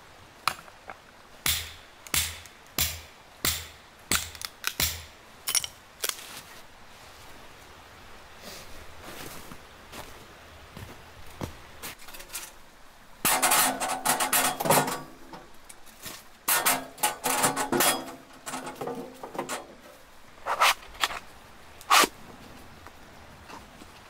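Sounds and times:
sheet metal clattering and scraping: 13.3s - 15.5s, 16.5s - 20.0s.

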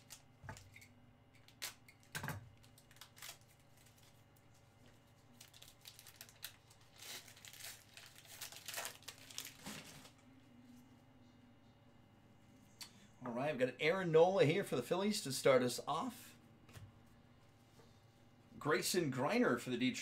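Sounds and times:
plastic wrapper crinkling and tearing: 0.0s - 10.2s.

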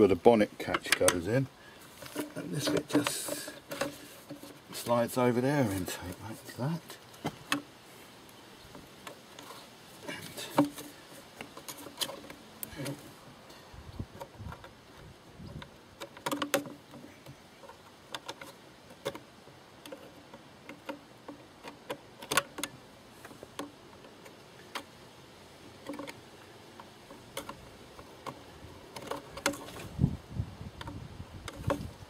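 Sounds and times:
plastic ducting clicks and knocks: 2.0s - 5.0s, 6.0s - 7.7s, 10.2s - 13.0s, 15.4s - 25.0s, 25.8s - 30.0s, 30.8s - 32.0s.

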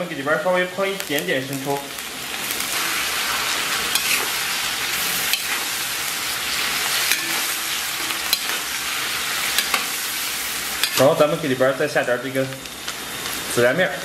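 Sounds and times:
meat sizzling in hot oil: 0.0s - 14.0s
metal spatula scraping a pan: 2.8s - 5.8s, 6.5s - 9.9s.

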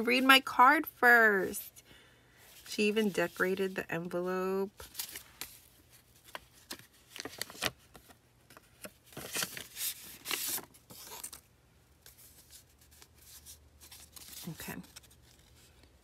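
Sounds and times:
paper rustling: 4.8s - 11.4s, 12.0s - 16.0s.

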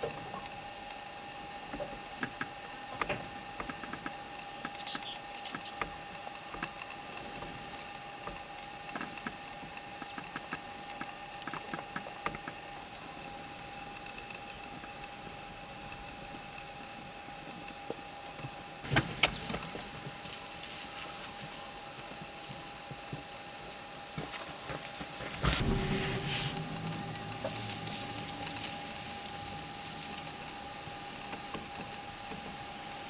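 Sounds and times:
steady tone: 25.4s - 30.8s.

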